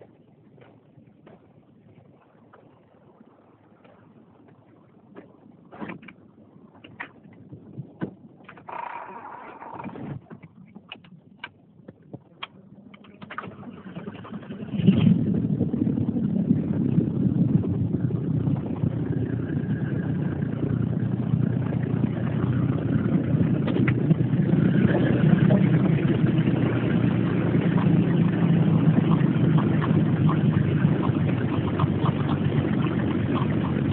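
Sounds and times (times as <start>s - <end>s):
pickup engine idling: 13.6s - 33.9s.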